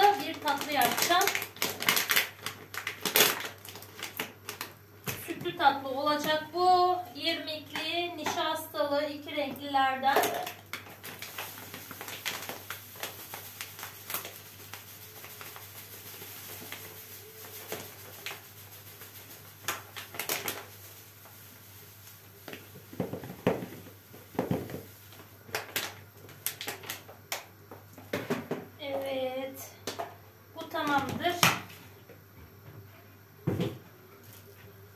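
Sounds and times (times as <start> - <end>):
granules poured into canister: 0.0 - 4.7, 10.2 - 23.2
plastic bag rustling: 0.0 - 6.5, 10.0 - 27.2.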